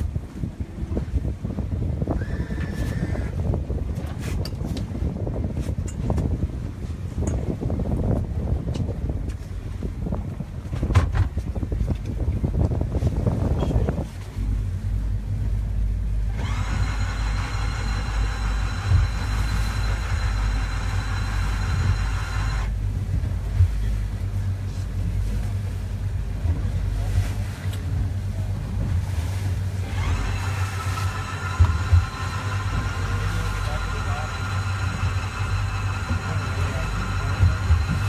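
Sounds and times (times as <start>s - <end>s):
boat engine rumble: 0.0s - 38.0s
wind buffeting microphone: 0.0s - 38.0s
high steady whine: 14.4s - 27.1s, 29.5s - 38.0s.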